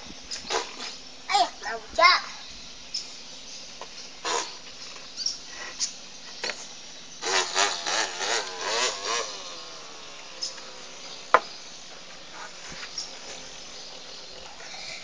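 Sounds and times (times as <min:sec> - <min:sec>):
child imitating chainsaw: 0:00.5 - 0:02.4, 0:07.2 - 0:11.1.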